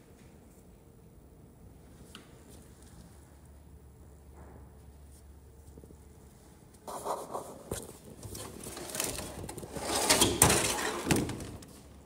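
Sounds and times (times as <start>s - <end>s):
scraping and rubbing handling noise: 6.8s - 12.0s.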